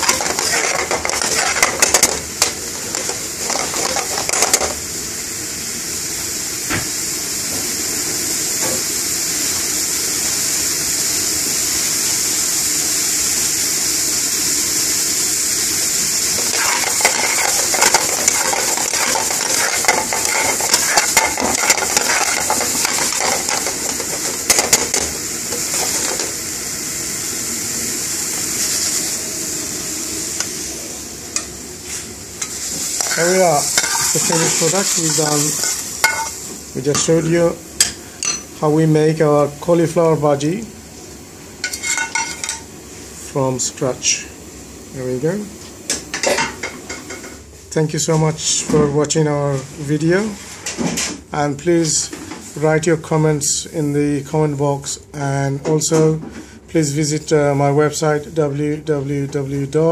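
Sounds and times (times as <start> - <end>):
metal spoon scraping pan: 0.0 - 4.7, 16.4 - 25.1, 33.0 - 35.0
curry sizzling in frying pan: 0.0 - 38.6, 40.4 - 43.3, 44.2 - 47.7.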